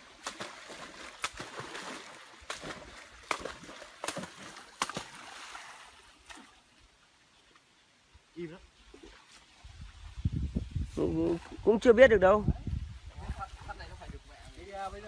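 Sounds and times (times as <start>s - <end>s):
sharp water slaps: 0.0s - 6.7s
water splashing and sloshing: 0.0s - 11.9s.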